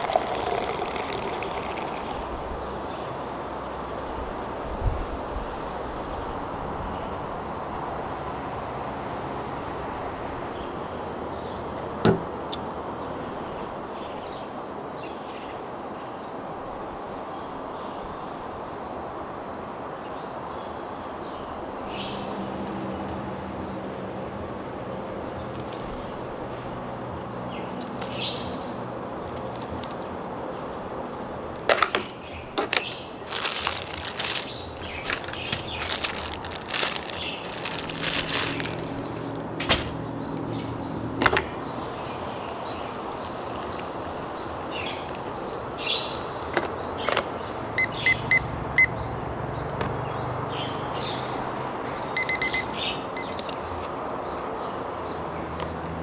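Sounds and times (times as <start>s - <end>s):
plastic packaging crinkling: 0.0s - 2.3s, 33.2s - 39.5s
outdoor background hum: 0.0s - 56.0s.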